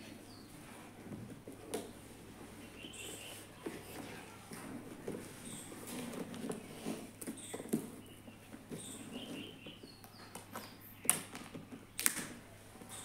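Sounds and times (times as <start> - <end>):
tape and cardboard rustling: 2.9 - 13.0.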